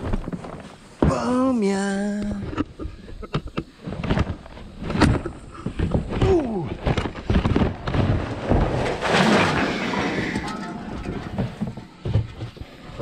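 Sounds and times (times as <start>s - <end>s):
debris clattering in metal dumpster: 7.5s - 12.0s.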